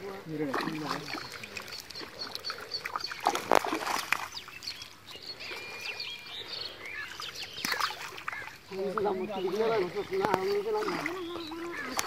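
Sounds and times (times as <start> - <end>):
wet net splashing and slapping: 0.4 - 4.8, 7.2 - 9.0, 9.6 - 12.0.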